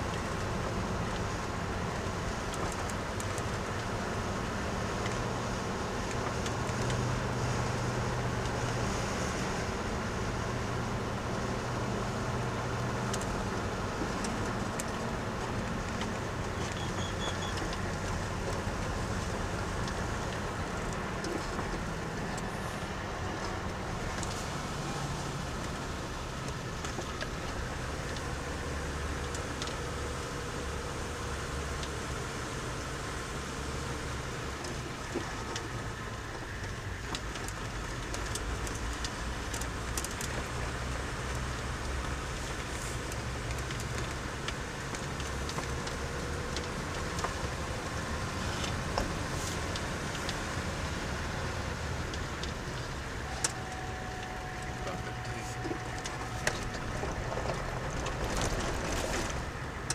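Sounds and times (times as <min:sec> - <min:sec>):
car engine and tyre rumble: 0:00.0 - 0:59.9
faint rattles and clicks: 0:51.4 - 0:59.9.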